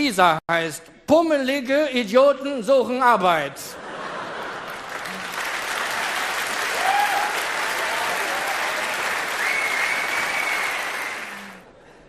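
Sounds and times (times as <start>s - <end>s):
audience applauding: 4.4s - 11.7s.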